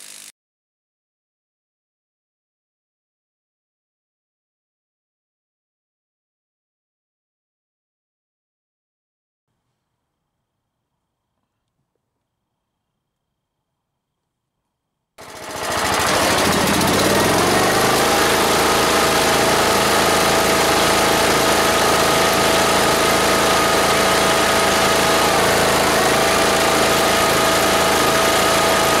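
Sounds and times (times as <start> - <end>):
lawn tractor engine running: 15.2 - 29.0.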